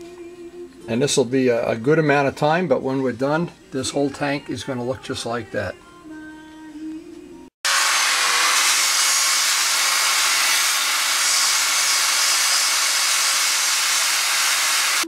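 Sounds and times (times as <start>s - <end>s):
faint background music: 0.0s - 7.5s
rotary tool grinding metal: 7.7s - 15.0s.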